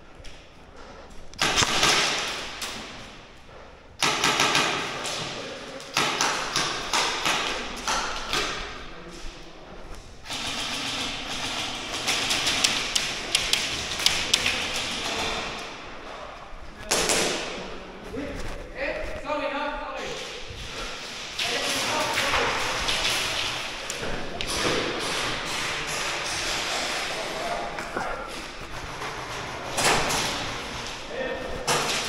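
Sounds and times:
airsoft gun bursts in echoing hall: 1.4 - 3.2, 4.0 - 9.0, 10.2 - 15.9, 16.8 - 17.8, 20.0 - 32.0.

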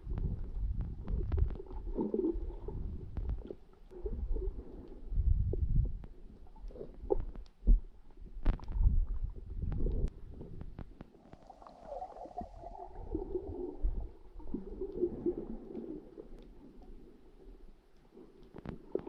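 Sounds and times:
underwater water surges: 8.7 - 19.0.

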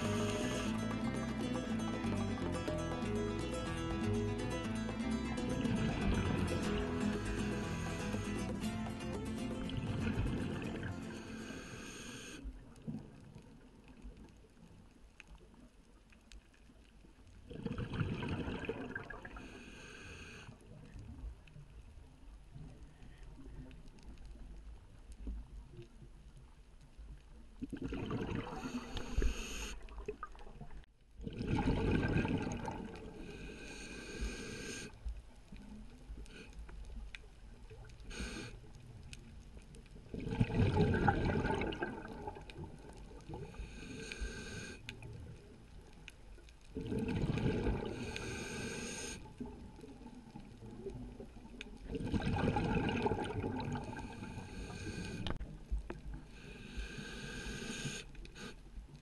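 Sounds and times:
water hiss: 0.0 - 1.4, 5.9 - 12.5, 19.0 - 20.5, 28.2 - 30.0, 31.8 - 35.0, 38.0 - 38.8, 43.2 - 45.1, 47.0 - 50.1, 52.1 - 55.5, 56.2 - 58.7
diver breathing through regulator: 0.0 - 12.5, 19.2 - 20.6, 28.3 - 29.9, 31.5 - 35.0, 38.0 - 38.7, 43.3 - 45.1, 46.8 - 49.5, 52.4 - 55.5, 56.2 - 58.7.

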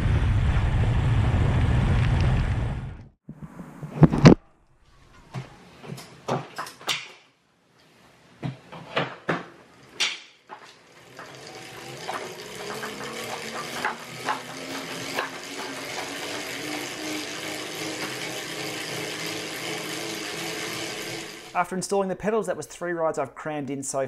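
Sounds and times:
cycling cleats clicking into pedals: 8.4 - 21.6
bike trainer and chain whirring: 9.4 - 21.8.

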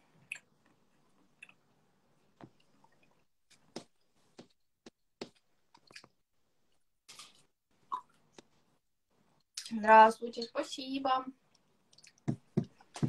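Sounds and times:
mouth clicks and lip smacks chewing: 0.2 - 1.6, 5.7 - 6.2, 11.5 - 12.3.

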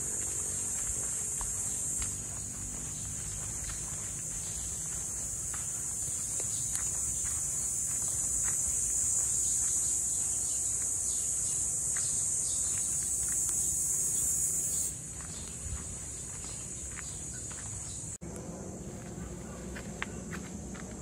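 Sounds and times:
faint footsteps: 0.0 - 18.2, 18.8 - 21.0
high-pitched insect chorus: 0.0 - 18.2.

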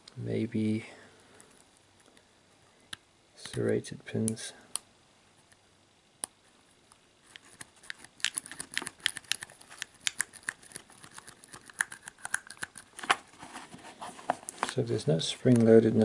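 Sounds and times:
lock pick clicking and scraping: 7.3 - 12.8.

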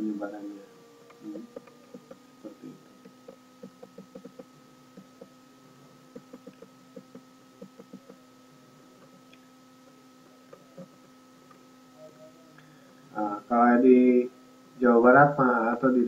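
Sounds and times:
steady electrical hum: 0.0 - 16.0
mouse scroll wheel ticking: 1.5 - 2.2, 3.0 - 5.3, 6.2 - 8.2.

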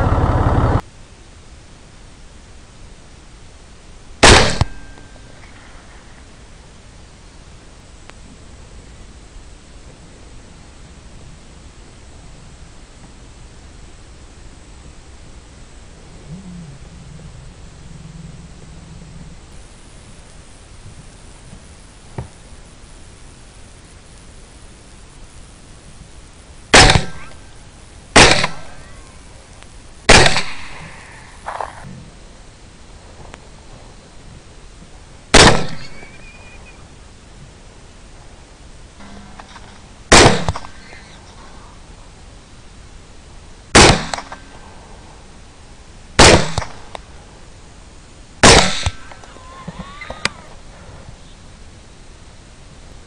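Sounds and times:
rifle shots with echo: 4.2 - 5.1, 26.7 - 27.4, 28.2 - 29.0, 30.1 - 31.1, 35.3 - 36.2, 39.4 - 41.1, 43.8 - 44.5, 46.2 - 46.9, 48.4 - 49.2.

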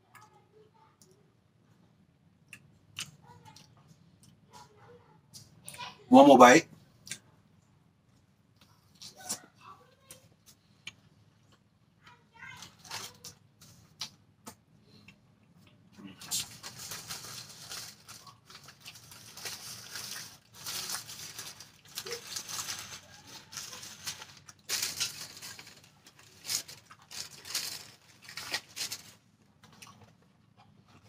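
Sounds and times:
person chewing: 13.6 - 31.0.

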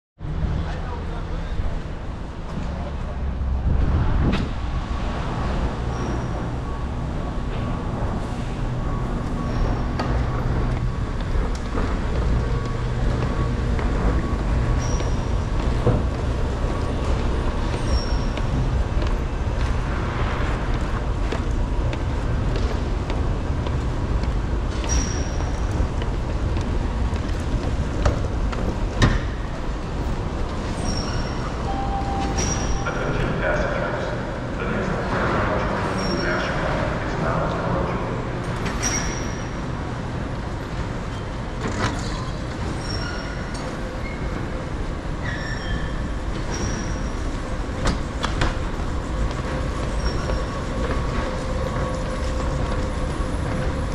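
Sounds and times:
escalator rumble and hum: 0.2 - 53.9
escalator squeaks: 12.2 - 18.6, 24.8 - 25.7, 30.6 - 33.1, 41.1 - 44.6, 45.2 - 47.3.

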